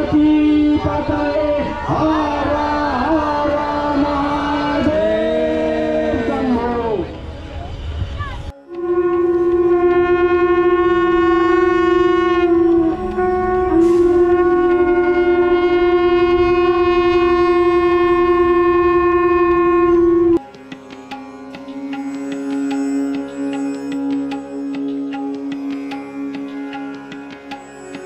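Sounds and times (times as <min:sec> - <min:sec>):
conch shell long note: 0:00.0 - 0:07.8, 0:08.5 - 0:28.0
instrumental music: 0:08.2 - 0:28.0.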